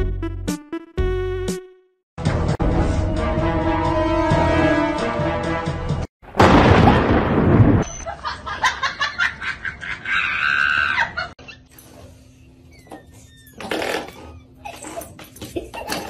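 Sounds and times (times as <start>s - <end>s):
thunderclap: 6.2s - 8.0s.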